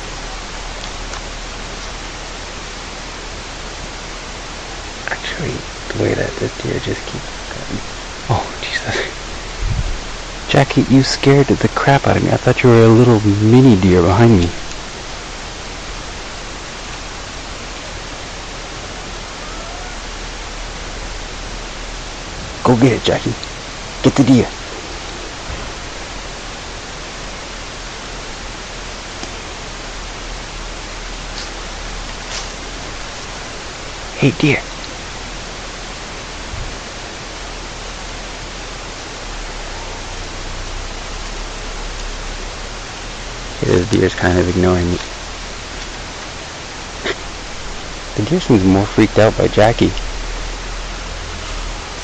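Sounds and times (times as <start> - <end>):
steady hiss: 0.0 - 52.0
faint low bump: 9.6 - 10.1.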